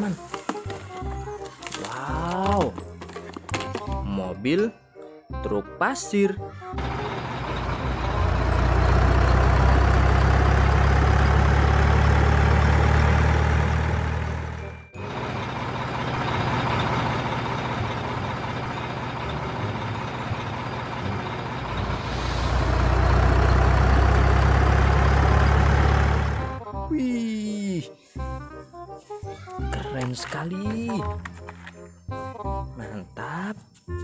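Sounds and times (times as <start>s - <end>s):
diesel engines rumbling: 6.7s - 26.9s.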